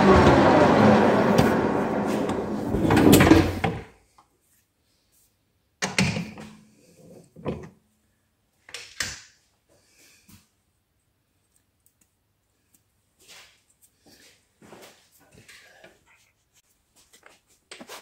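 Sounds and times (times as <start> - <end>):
metal lathe running down: 0.0 - 2.8.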